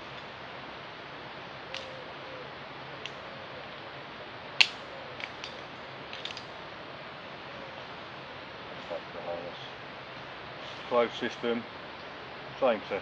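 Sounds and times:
metal climbing hardware clinking: 4.6s - 6.5s.

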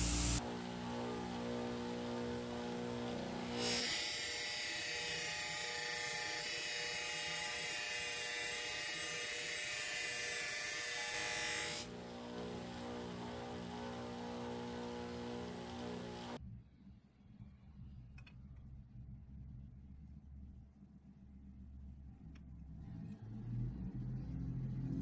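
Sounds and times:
metal rod polishing hiss: 0.0s - 0.4s
bench buffer motor humming: 0.0s - 16.4s.

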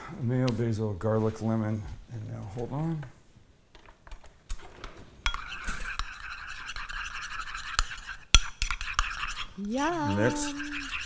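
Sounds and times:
utensil scraping ceramic bowl: 5.3s - 11.0s.

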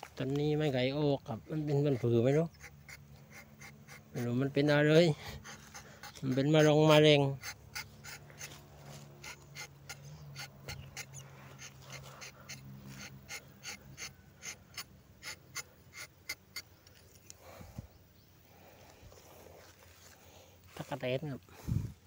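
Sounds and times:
knife shaving tree bark: 0.0s - 17.5s.

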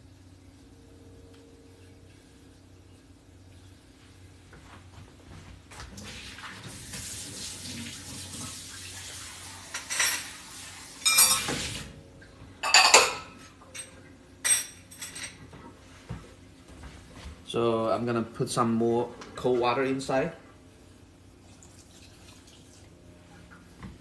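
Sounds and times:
faucet running: 6.0s - 12.0s, 21.5s - 23.0s
dishes clinking: 9.7s - 10.4s, 11.0s - 11.8s, 12.6s - 15.6s.

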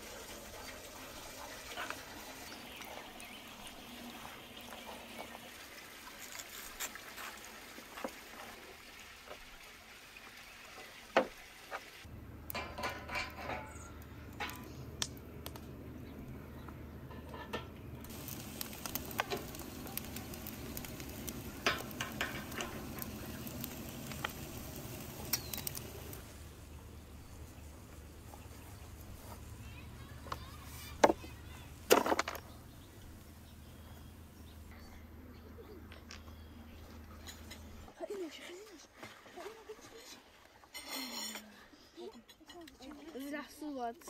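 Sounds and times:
fire rumbling in barrel grill: 12.0s - 16.4s, 17.0s - 34.6s.

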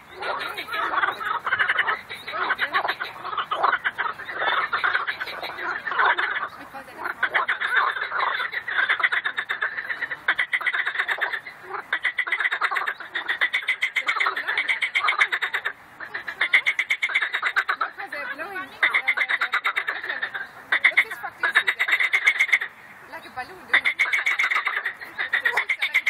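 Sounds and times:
frogs croaking: 0.0s - 26.0s.

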